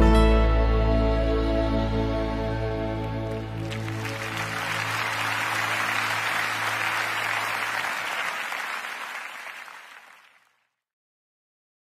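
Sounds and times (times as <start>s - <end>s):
audience applause: 3.0s - 10.6s.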